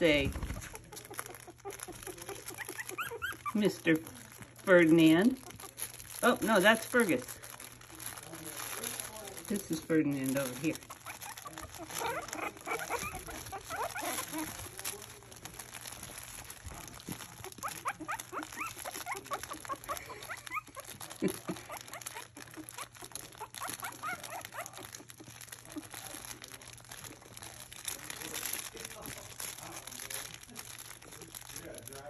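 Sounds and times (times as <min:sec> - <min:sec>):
puppies squeaking and whimpering: 0:00.0 - 0:28.6
crinkle toy rustling: 0:00.0 - 0:32.0.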